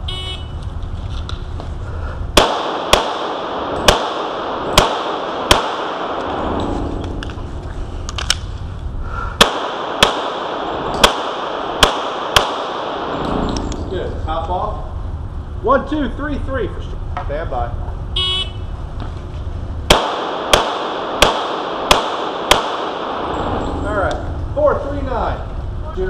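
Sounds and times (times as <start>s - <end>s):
pistol shots echoing indoors: 2.4s - 6.6s, 9.4s - 13.3s, 19.9s - 23.7s.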